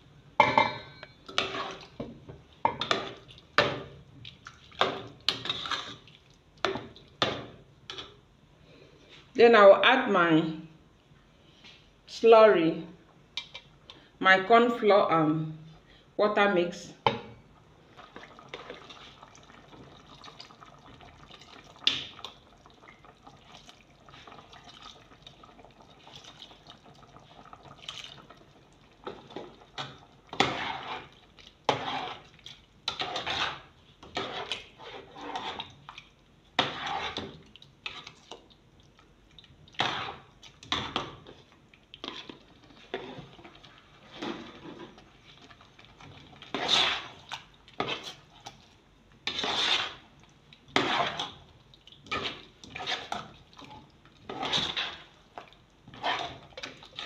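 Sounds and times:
spoon stirring sauce in a pot: 0:01.0 - 0:08.2, 0:17.9 - 0:57.0.

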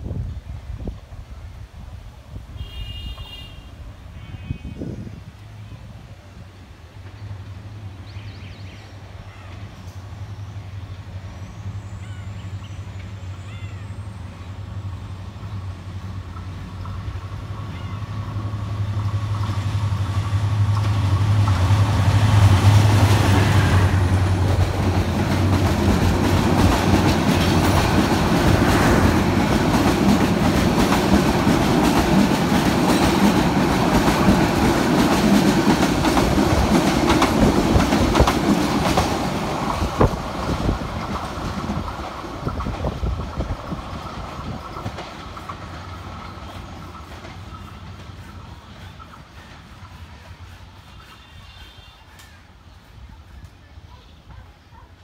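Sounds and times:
train wheels rumbling on rails: 0:05.0 - 0:55.0
locomotive engine hum: 0:09.0 - 0:51.4.

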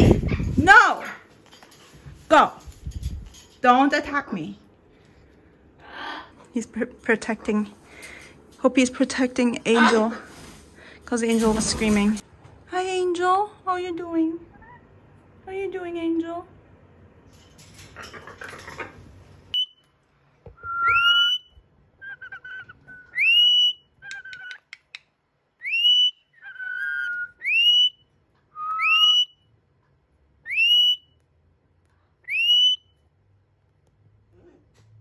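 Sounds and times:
parrot whistling: 0:20.6 - 0:24.6, 0:25.6 - 0:29.4, 0:30.4 - 0:31.2, 0:32.2 - 0:32.9.

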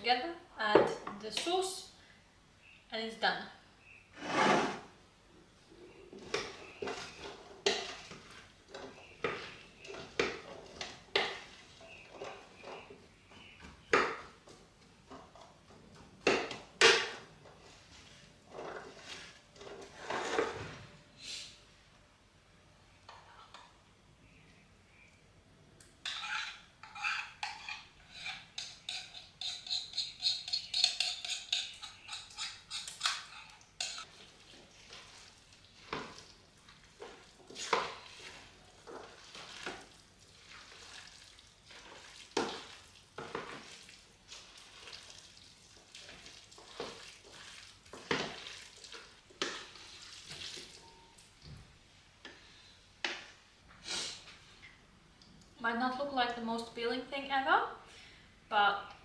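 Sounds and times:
spoon stirring and scraping pot: 0:05.8 - 0:20.8, 0:23.0 - 0:23.8, 0:25.8 - 0:51.1.

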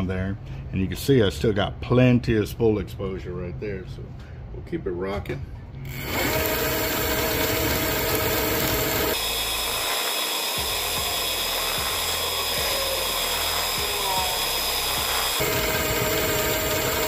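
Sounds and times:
line-spooling machine whirring: 0:05.9 - 0:17.0.

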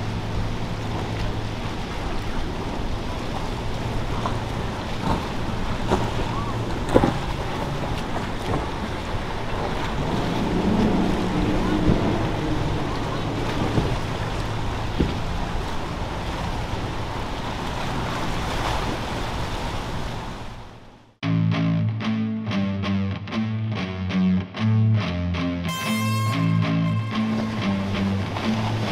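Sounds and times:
wind buffeting microphone: 0:00.0 - 0:20.4
boat motors running: 0:00.0 - 0:21.2, 0:25.7 - 0:28.9
surf: 0:00.0 - 0:28.9.

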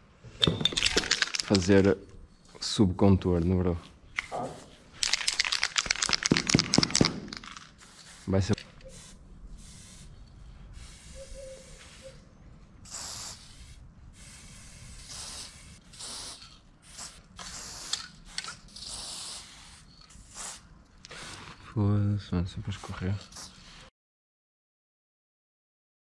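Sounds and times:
spray paint can hissing: 0:00.9 - 0:01.6, 0:04.2 - 0:12.2, 0:12.8 - 0:21.5, 0:22.8 - 0:23.9.

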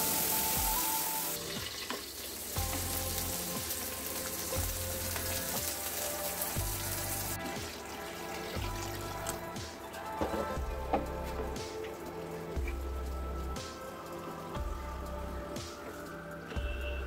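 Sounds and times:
background music with bass: 0:00.0 - 0:01.6, 0:02.6 - 0:17.0
paste sizzling in hot oil: 0:00.0 - 0:10.1.

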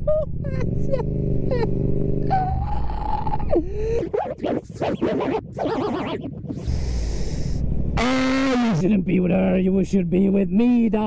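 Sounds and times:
choppy scratching run: 0:03.5 - 0:06.9
long breath drawn in: 0:06.6 - 0:07.8.

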